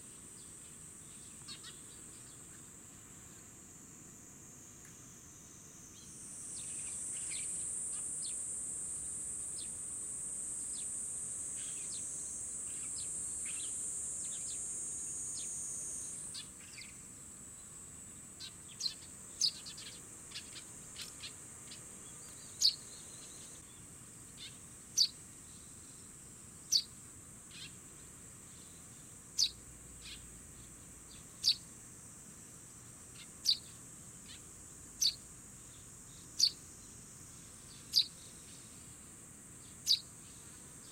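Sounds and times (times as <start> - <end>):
sparrow chirps: 1.1 - 2.4, 6.6 - 8.4, 18.4 - 23.6, 24.4 - 25.2, 26.7 - 26.9, 27.5 - 27.8, 29.4 - 30.2, 31.1 - 31.6, 33.1 - 35.8, 36.4 - 36.6, 37.7 - 38.7, 39.6 - 40.1
high-pitched insect drone: 5.4 - 17.0.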